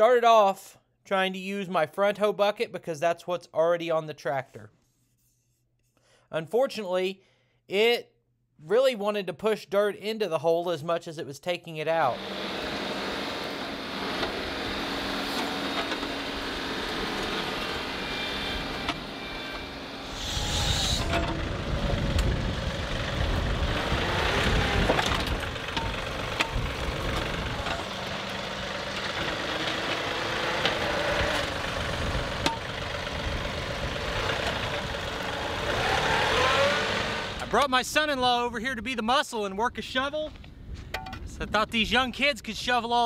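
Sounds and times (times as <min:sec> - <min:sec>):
bucket scraping dirt: 0:12.1 - 0:19.2
tractor diesel engine running: 0:12.1 - 0:37.8.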